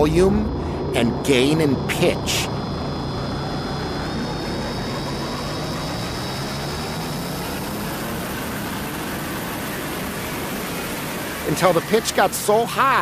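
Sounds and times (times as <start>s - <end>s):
deep grinding rumble: 0.0s - 5.9s.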